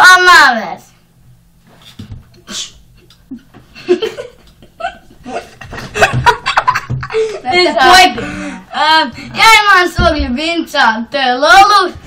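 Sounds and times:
boys giggling and laughing: 3.0s - 8.7s.

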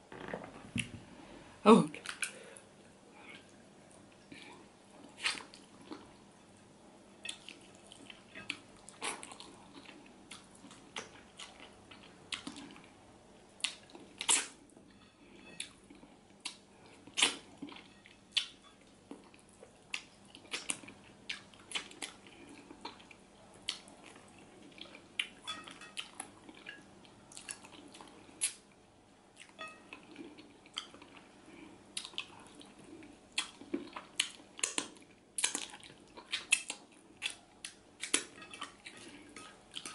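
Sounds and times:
person chewing and lip smacking: 7.2s - 12.9s, 13.6s - 14.6s, 15.6s - 28.6s, 29.4s - 31.3s, 32.0s - 39.9s.

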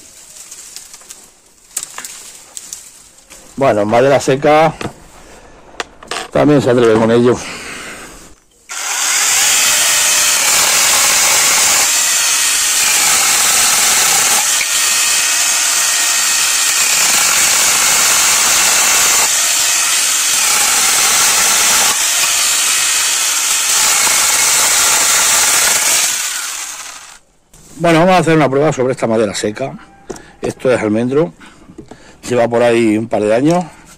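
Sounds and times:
mini chainsaw cutting branches: 8.7s - 27.2s.

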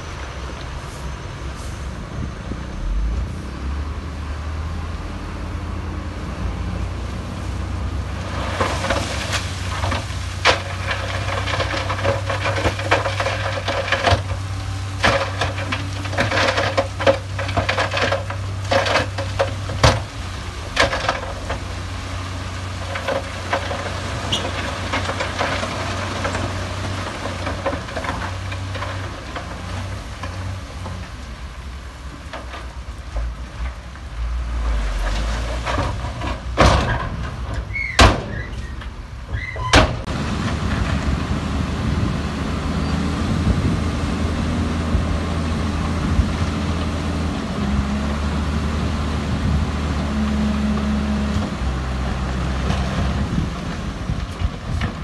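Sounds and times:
diesel engine running: 0.0s - 55.0s
clanks and scraping of rock: 8.2s - 31.4s, 32.1s - 41.2s, 49.4s - 55.0s.

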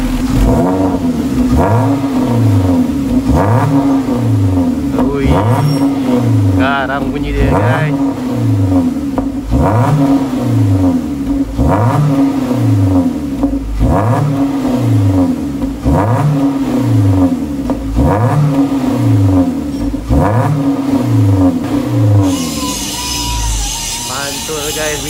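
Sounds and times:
car exhaust revving: 0.0s - 25.0s.

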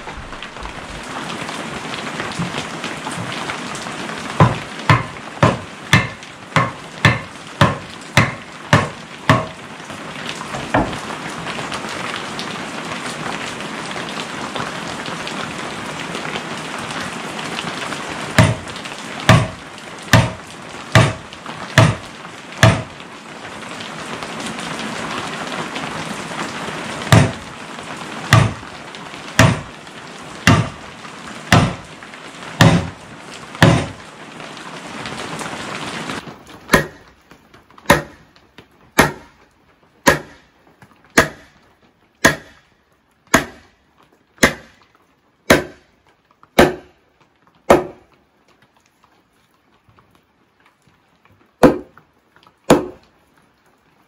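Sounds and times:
sledgehammer striking wood: 4.4s - 9.6s, 10.6s - 11.0s, 18.4s - 23.0s, 27.1s - 27.5s, 28.3s - 28.7s, 29.4s - 29.8s, 30.4s - 30.9s, 31.5s - 31.9s, 32.6s - 33.0s, 33.6s - 34.0s, 36.7s - 37.1s, 37.8s - 38.3s, 39.0s - 39.4s, 40.0s - 40.5s, 41.1s - 41.6s, 42.2s - 42.7s, 43.3s - 43.8s, 44.4s - 44.8s, 45.5s - 45.9s, 46.6s - 47.0s, 47.7s - 48.1s, 51.6s - 52.0s, 52.7s - 53.0s.

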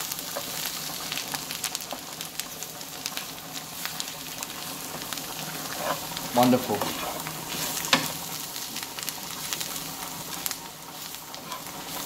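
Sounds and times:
onions sizzling in frying pan: 0.0s - 12.0s
spatula scraping pan: 5.4s - 8.2s, 11.3s - 12.0s.

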